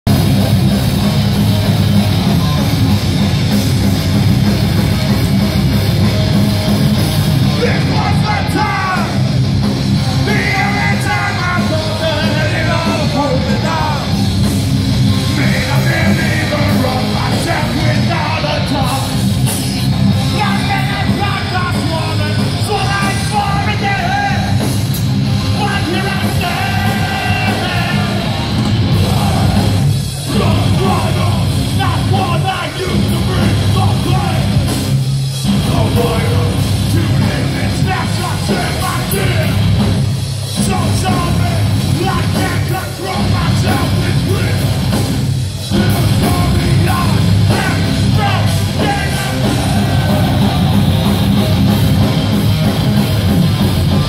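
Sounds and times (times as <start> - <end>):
distorted guitar: 0.0 - 54.0
hardcore band playing live: 0.0 - 54.0.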